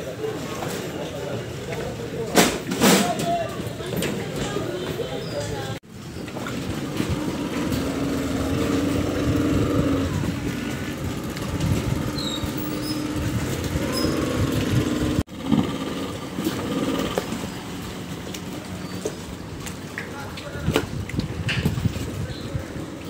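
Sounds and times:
outboard motors droning: 0:04.2 - 0:20.6.

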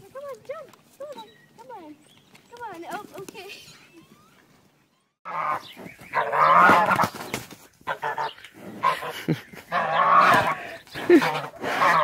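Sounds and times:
goose honking: 0:05.2 - 0:07.1, 0:07.8 - 0:12.0.

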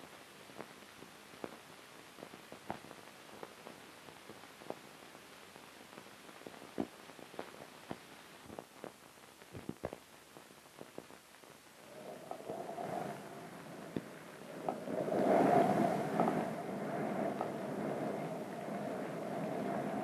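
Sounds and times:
film soundtrack surface noise: 0:09.6 - 0:20.0.

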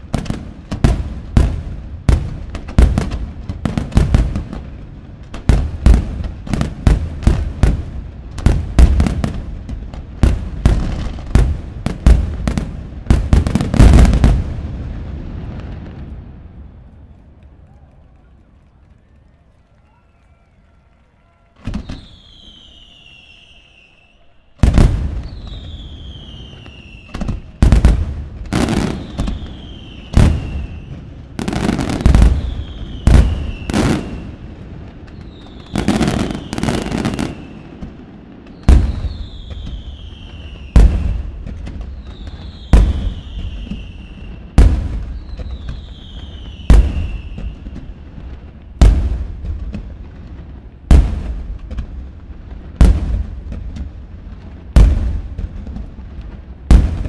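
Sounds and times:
firework crackling: 0:00.0 - 0:18.3, 0:21.3 - 0:57.0
falling firework whistle: 0:19.8 - 0:34.4, 0:35.0 - 0:48.8.

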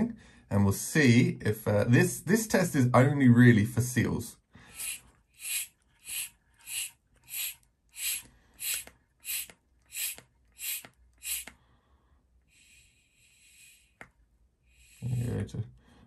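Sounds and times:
hand vacuum pump hissing: 0:04.7 - 0:11.6, 0:12.5 - 0:14.1, 0:14.7 - 0:15.3.

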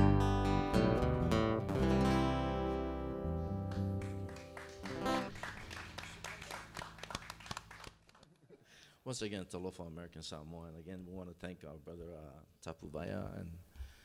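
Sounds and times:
acoustic guitar strummed chord: 0:00.0 - 0:05.3.

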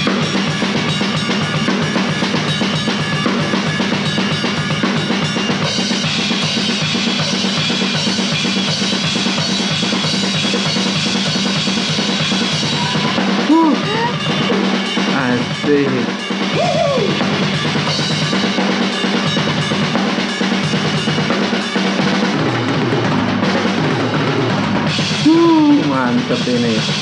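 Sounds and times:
drum kit solo: 0:00.0 - 0:27.0
people laughing: 0:12.4 - 0:15.6.

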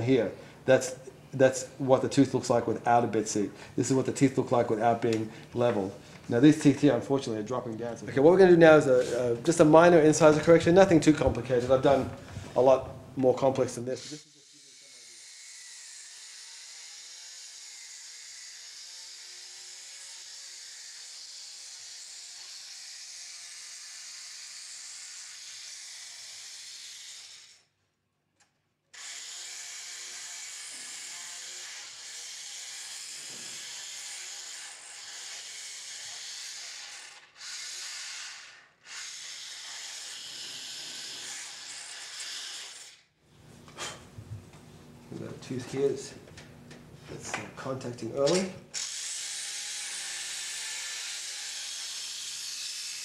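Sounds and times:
rotary disc grinding teeth: 0:29.0 - 0:43.0, 0:48.8 - 0:53.0.

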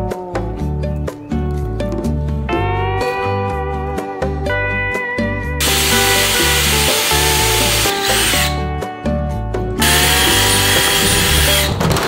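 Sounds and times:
background music with bass line: 0:00.0 - 0:12.0
cordless drill drilling metal: 0:05.6 - 0:08.6, 0:09.8 - 0:11.8.

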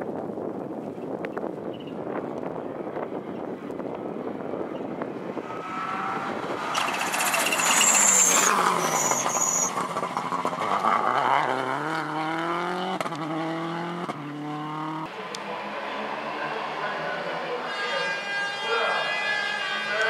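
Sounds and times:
rally car engine at full throttle: 0:01.5 - 0:20.0
high tyre squeals: 0:05.3 - 0:11.4, 0:15.9 - 0:20.0.

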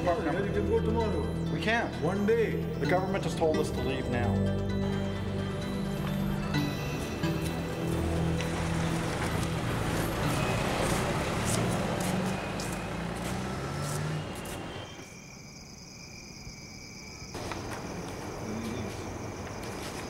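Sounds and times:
car engines: 0:03.6 - 0:15.1
traffic noise: 0:03.6 - 0:15.5, 0:17.3 - 0:20.0
crickets chirring: 0:04.5 - 0:20.0.

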